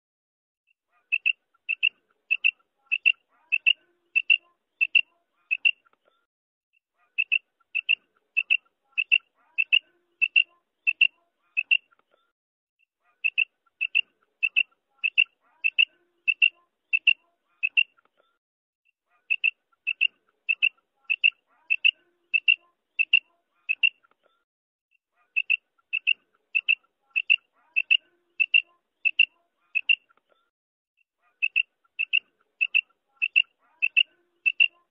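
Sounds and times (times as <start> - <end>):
quail calling high notes: 0.9 - 5.8, 7.2 - 11.9, 13.2 - 17.9, 25.3 - 30.1, 31.3 - 34.9.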